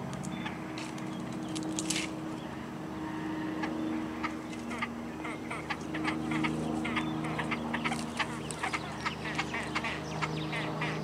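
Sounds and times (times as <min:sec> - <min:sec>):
birds chirping: 0:00.0 - 0:11.0
steady low hum: 0:00.0 - 0:11.0.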